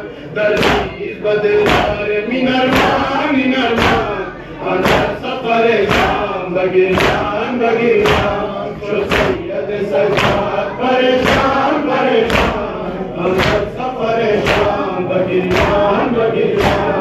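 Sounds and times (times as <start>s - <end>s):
crowd chanting together: 0.0s - 17.0s
hands slapping chests: 0.5s - 1.0s, 1.6s - 2.0s, 2.7s - 4.1s, 4.7s - 6.3s, 6.9s - 7.4s, 8.0s - 14.8s, 15.4s - 17.0s.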